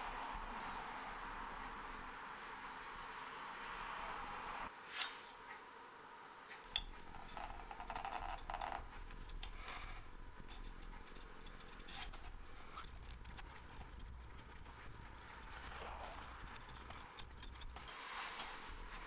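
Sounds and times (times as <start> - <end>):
knife scraping leather: 6.8 - 19.0.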